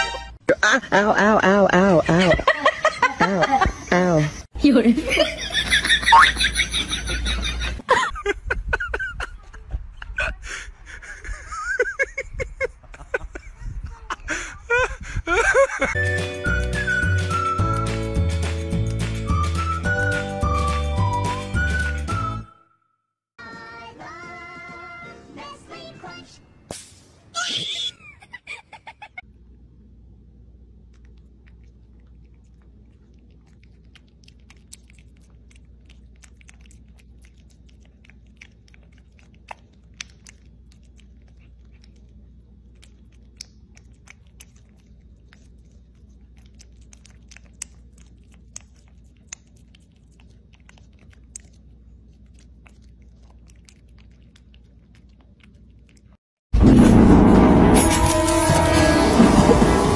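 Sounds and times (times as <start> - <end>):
low steady hum: 29.2 - 56.2
kitten licking wet smacking: 30.8 - 56.2.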